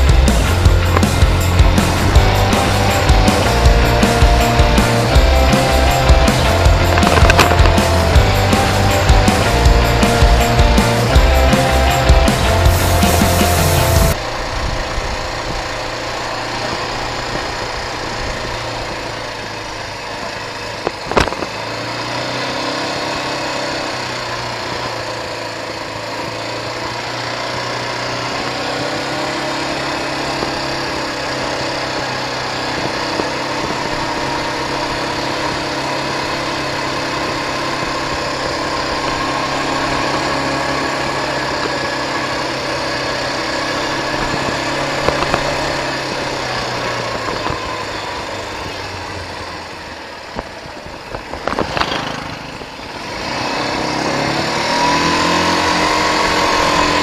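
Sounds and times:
quad bike engine running: 0.0s - 57.0s
sharp knocks: 6.8s - 8.1s.

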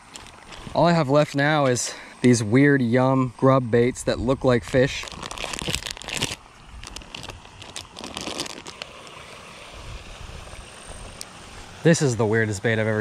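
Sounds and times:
plastic bag crinkling and tearing: 4.7s - 9.2s.

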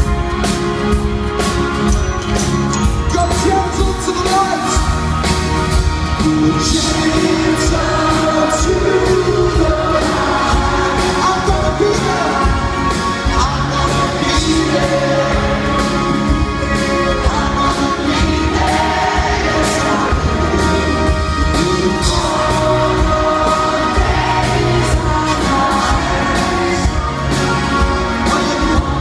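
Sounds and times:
live band playing slow song: 0.0s - 29.0s
person singing: 6.1s - 29.0s.

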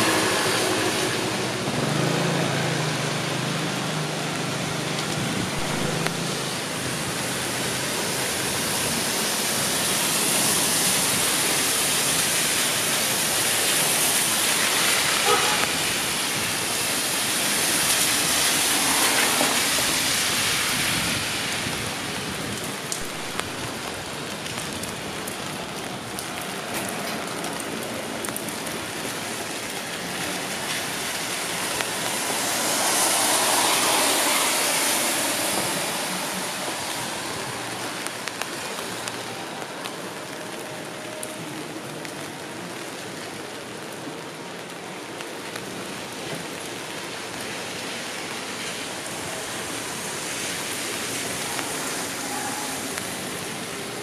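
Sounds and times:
steady rain: 0.0s - 54.0s
loud rushing noise: 5.3s - 22.2s, 31.5s - 38.0s
raindrop ticks: 22.6s - 30.9s, 38.0s - 45.7s.

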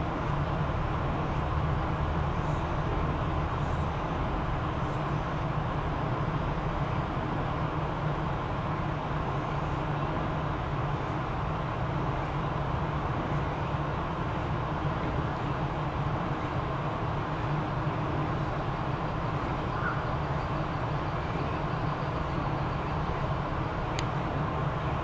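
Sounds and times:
outdoor rumble and hiss: 0.0s - 25.0s.

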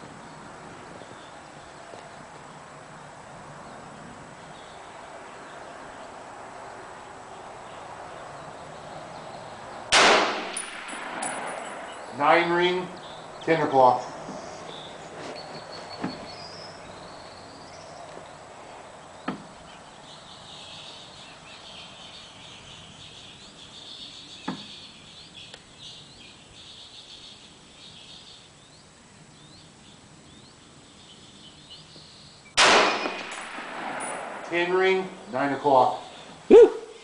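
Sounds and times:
rifle shot: 9.9s - 11.7s, 32.6s - 34.6s.

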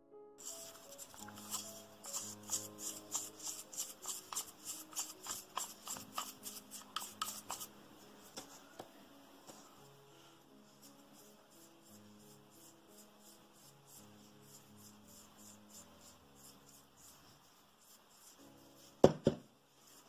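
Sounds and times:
toothbrush scrubbing coffee grinder: 0.4s - 7.7s.

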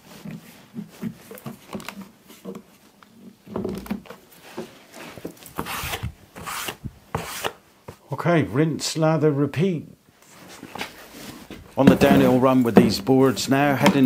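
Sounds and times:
cloth rubbing across wood: 4.4s - 7.6s.

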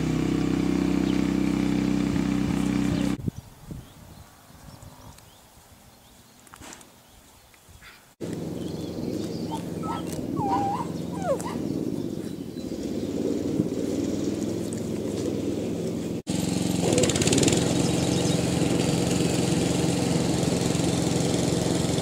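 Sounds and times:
low drone: 8.2s - 16.3s
puppy whimpering: 9.5s - 11.7s.

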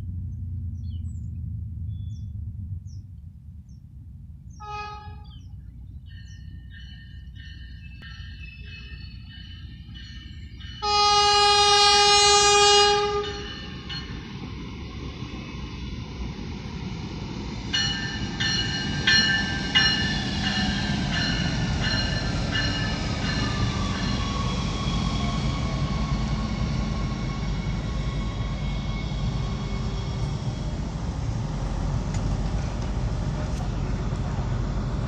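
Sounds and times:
train engine and wheels rumbling: 0.0s - 35.0s
bell ringing: 13.2s - 14.2s.

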